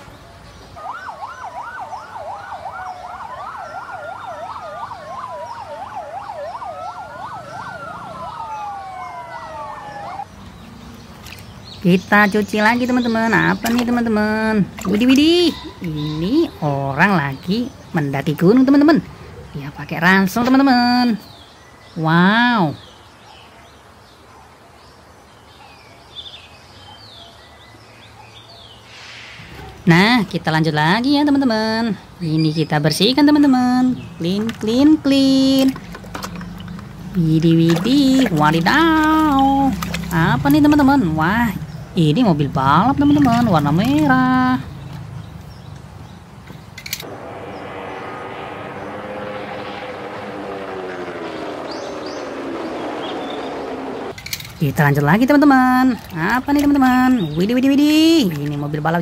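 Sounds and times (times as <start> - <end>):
birdsong chirps and whistles: 0.0 - 18.5, 20.7 - 29.8, 32.2 - 58.6
fire engine siren wail: 0.7 - 10.3, 47.0 - 54.2
fire engine siren yelp: 0.8 - 10.3, 47.0 - 54.1.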